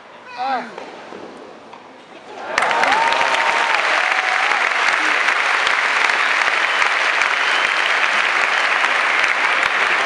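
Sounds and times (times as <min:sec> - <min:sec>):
crowd cheering: 0:02.2 - 0:10.0
crowd applauding: 0:02.4 - 0:10.0.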